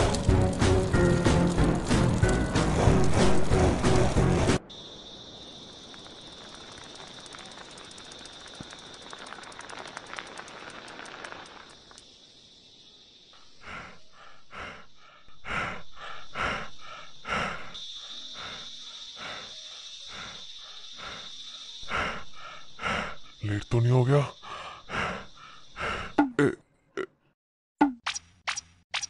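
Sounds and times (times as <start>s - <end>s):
insect drone: 0.0s - 26.6s
faint fast ticking: 5.4s - 23.4s
short breathy pulses: 13.4s - 23.4s, 24.4s - 26.6s.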